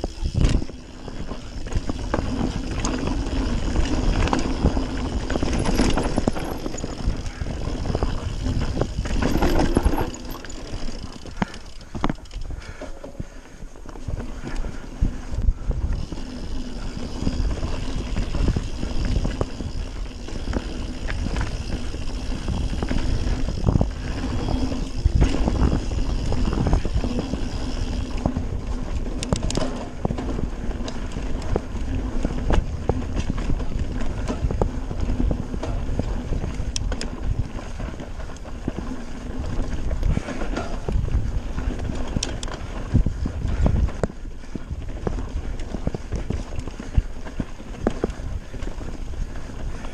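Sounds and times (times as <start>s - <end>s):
tyres rumbling over ground: 0.0s - 12.1s
bike knocks and rattles: 0.0s - 14.8s, 15.6s - 49.9s.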